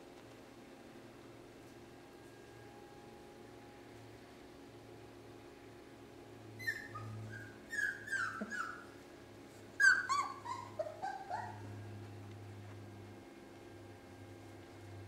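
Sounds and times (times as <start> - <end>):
puppies whimpering and yipping: 6.6 - 9.0, 9.8 - 11.8.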